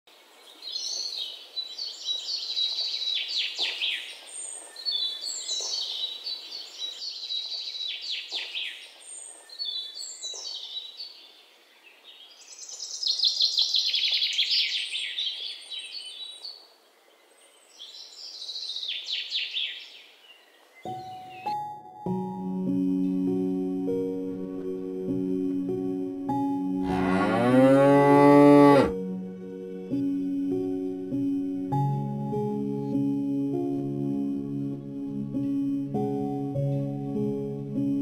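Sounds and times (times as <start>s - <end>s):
faint outdoor hiss: 0.1s - 32.9s
songbird singing with trill: 0.4s - 25.0s.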